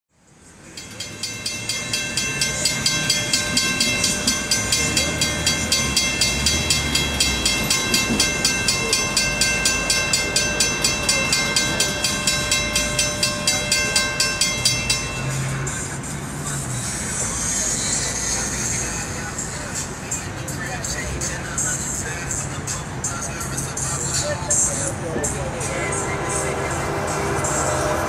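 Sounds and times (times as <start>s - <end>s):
crossing bell ringing: 0.5s - 28.0s.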